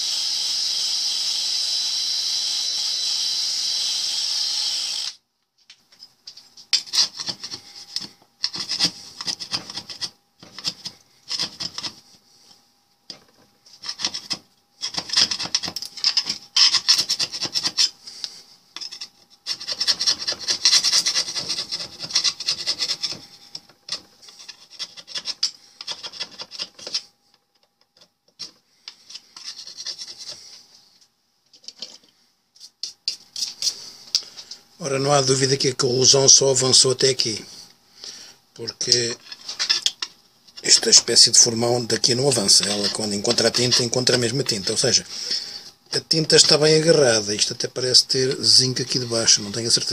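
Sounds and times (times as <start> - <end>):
hand file rasping on steel: 16.6 - 18.0, 19.4 - 27.0, 42.3 - 45.0.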